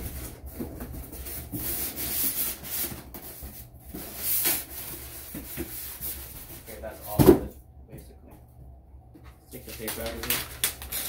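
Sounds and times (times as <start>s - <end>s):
cardboard rustling and scraping: 0.0s - 7.5s.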